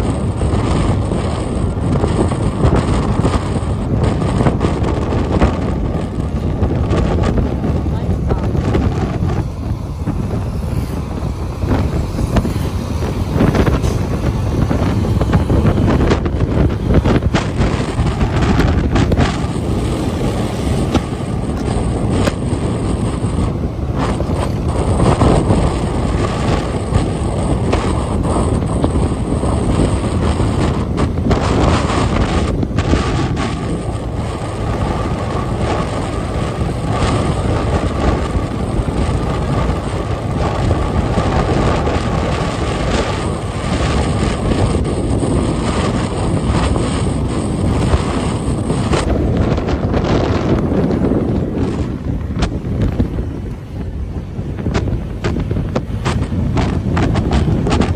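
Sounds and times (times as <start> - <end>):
motorbike road and engine noise: 0.0 - 57.9
wind rushing over microphone: 0.0 - 57.9.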